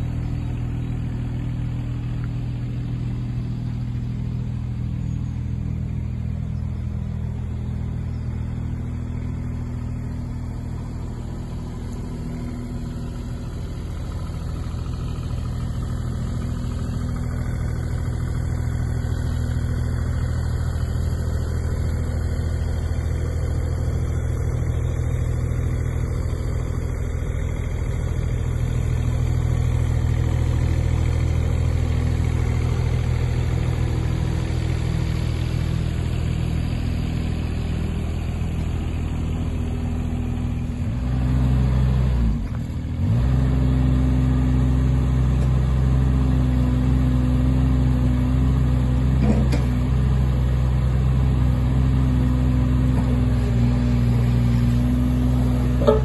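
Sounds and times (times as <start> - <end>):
excavator diesel engine running: 0.0 - 56.0.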